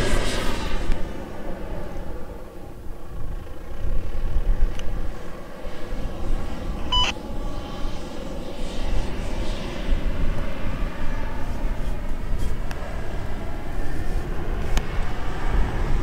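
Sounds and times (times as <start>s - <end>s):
wind buffeting microphone: 0.0s - 16.0s
short electronic beep: 6.9s - 7.1s.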